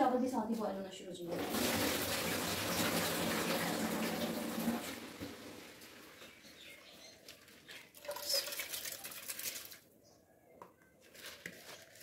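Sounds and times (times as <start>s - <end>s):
rice pouring into pot: 1.4s - 6.1s.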